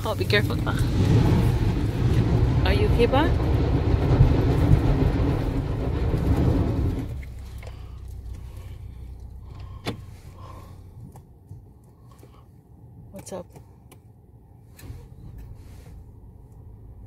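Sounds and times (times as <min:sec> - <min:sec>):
vehicle rumbling over gravel: 0:00.0 - 0:11.0
low hum: 0:00.0 - 0:13.0.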